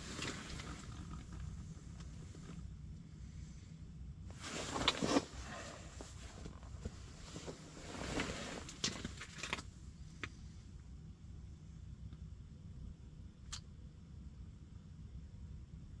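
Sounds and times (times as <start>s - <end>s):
steady low hum: 0.0s - 16.0s
jacket rustling: 4.3s - 9.6s.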